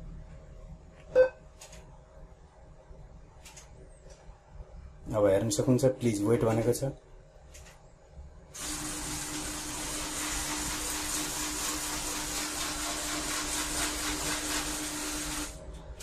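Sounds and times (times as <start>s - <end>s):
cash dispenser whirring: 8.6s - 16.0s.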